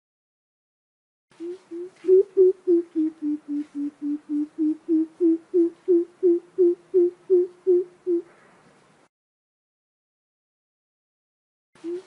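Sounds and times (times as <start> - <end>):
bird calling deep hollow notes: 1.4 - 8.3.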